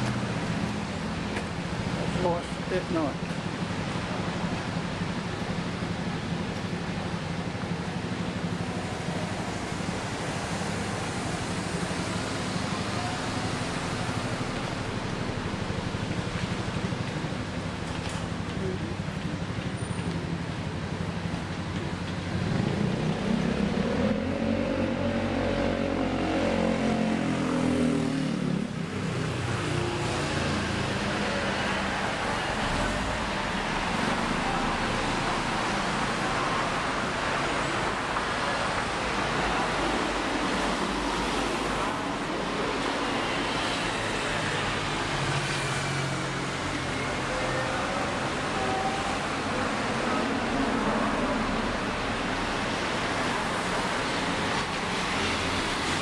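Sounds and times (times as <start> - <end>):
road traffic noise: 0.0 - 56.0.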